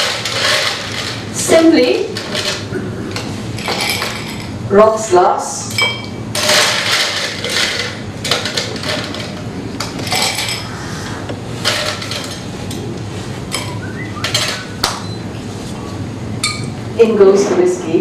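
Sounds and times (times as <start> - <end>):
glassware clinking on table: 5.7 - 6.2.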